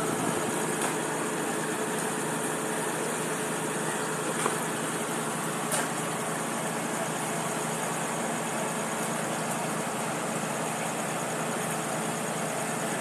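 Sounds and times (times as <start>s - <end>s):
truck engine running: 0.0s - 13.0s.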